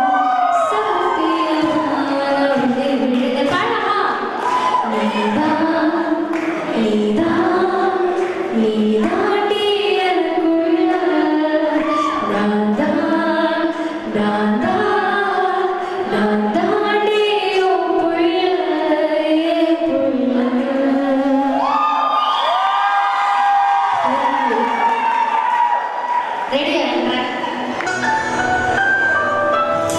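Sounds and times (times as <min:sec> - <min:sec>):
woman singing into microphone: 0:00.0 - 0:22.6.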